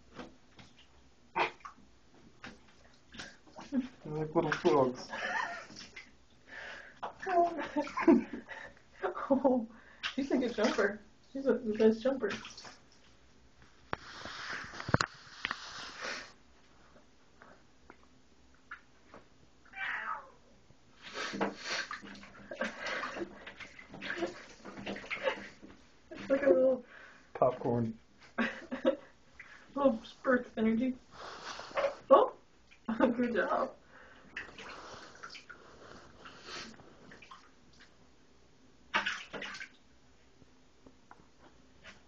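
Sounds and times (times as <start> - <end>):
water splashing in bathtub: 0.0 - 13.2, 21.0 - 38.0, 38.9 - 39.9
rats splashing in water: 2.4 - 6.2, 10.0 - 11.0, 11.6 - 13.2, 38.9 - 39.8.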